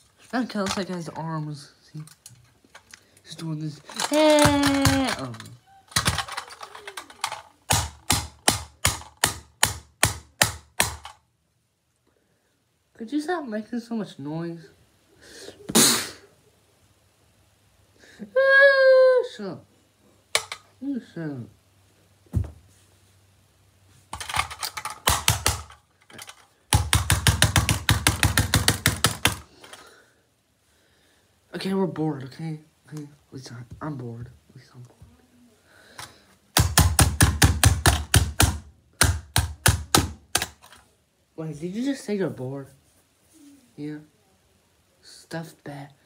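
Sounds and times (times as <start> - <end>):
screwdriver knocking on toy car: 4.3 - 5.2, 24.2 - 25.8, 26.7 - 29.4, 36.6 - 40.5.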